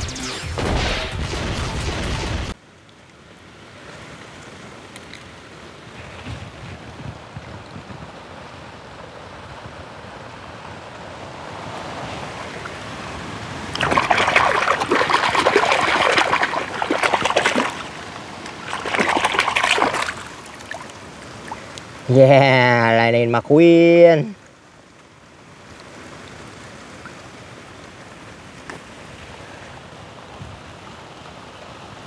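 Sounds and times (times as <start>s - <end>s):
hand splashing in water: 13.8s - 17.9s, 18.5s - 20.8s.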